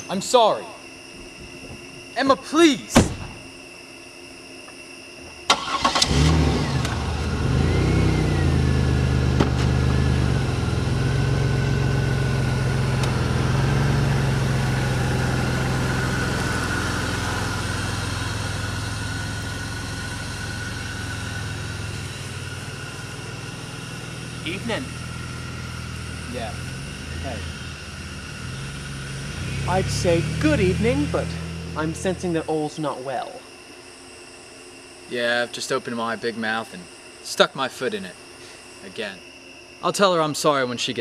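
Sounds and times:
high whine: 0:00.0 - 0:41.0
car door shutting: 0:02.9 - 0:03.4, 0:09.4 - 0:09.8
car engine starting and running: 0:05.5 - 0:32.6.

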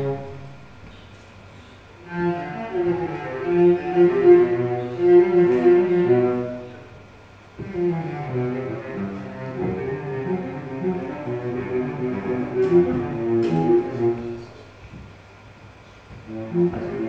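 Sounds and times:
low bowed strings playing: 0:00.0 - 0:00.8, 0:02.0 - 0:07.0, 0:07.6 - 0:14.6, 0:16.3 - 0:17.0.

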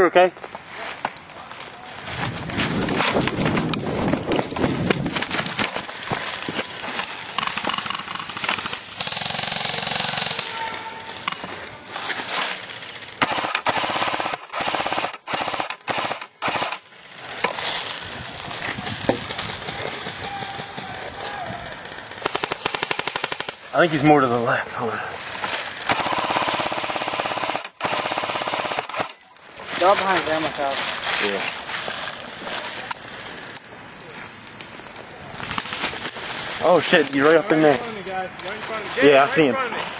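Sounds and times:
airsoft guns firing full-auto: 0:07.3 - 0:11.5, 0:13.2 - 0:16.8, 0:21.6 - 0:23.8, 0:25.2 - 0:29.2.

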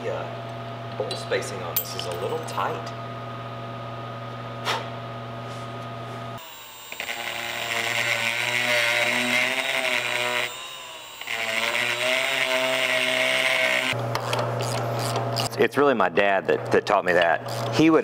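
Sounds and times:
rotary tool whining: 0:06.4 - 0:15.5.

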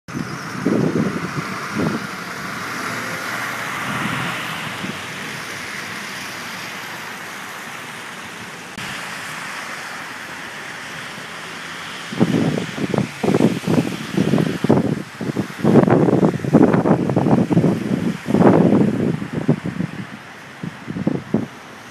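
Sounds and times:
wind gusts buffeting microphone: 0:00.1 - 0:07.3, 0:11.8 - 0:21.9
blizzard wind rushing: 0:00.1 - 0:21.9.

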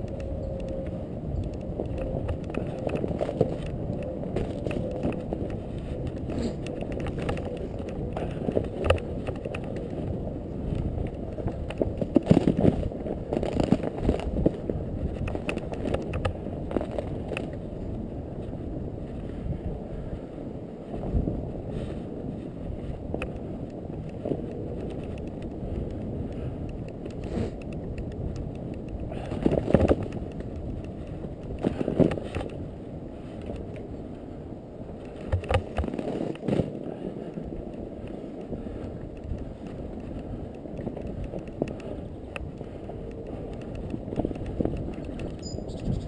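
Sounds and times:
bike tyres rumbling through snow: 0:00.0 - 0:46.0
bike knocks and rattles: 0:01.4 - 0:17.7, 0:22.8 - 0:33.7, 0:35.0 - 0:37.5.

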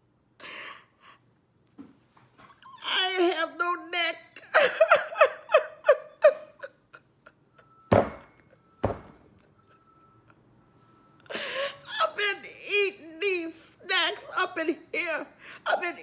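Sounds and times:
woman sobbing: 0:04.3 - 0:10.5, 0:11.2 - 0:16.0.

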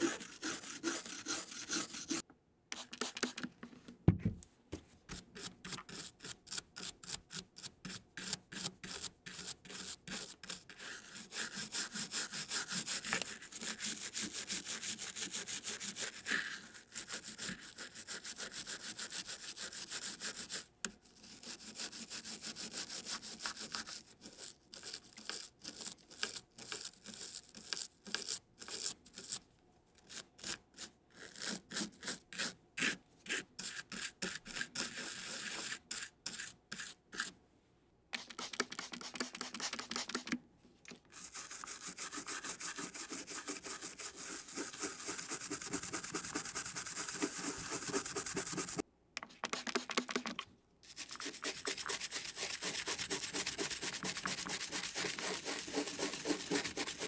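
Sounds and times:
toothbrush scrubbing circuit board: 0:00.0 - 0:02.2, 0:41.2 - 0:48.8, 0:50.9 - 0:57.0.

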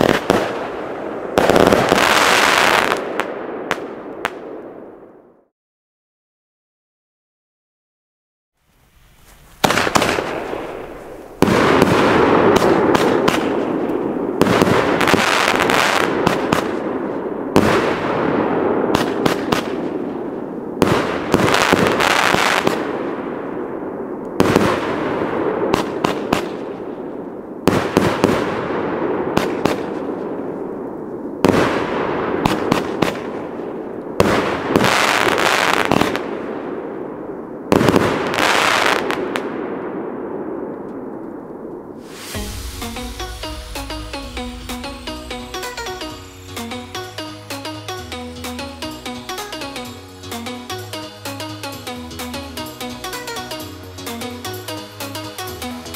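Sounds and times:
firework bangs: 0:00.0 - 0:04.6, 0:09.6 - 0:36.8, 0:37.6 - 0:47.3.

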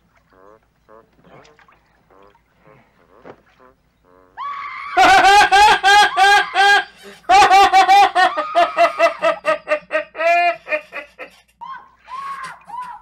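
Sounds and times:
woman cackling laugh: 0:05.0 - 0:11.4.

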